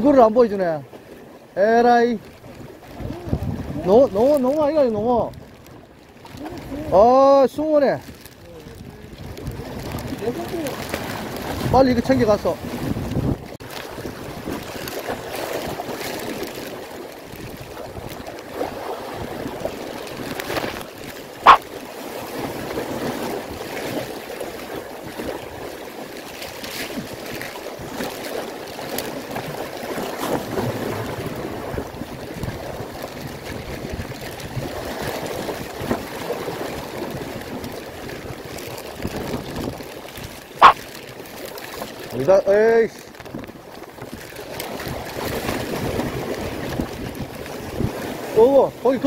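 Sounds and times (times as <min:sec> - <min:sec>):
sea water washing against concrete: 0:00.0 - 0:49.0
wind: 0:00.0 - 0:49.0
fabric rustling over microphone: 0:08.0 - 0:21.7.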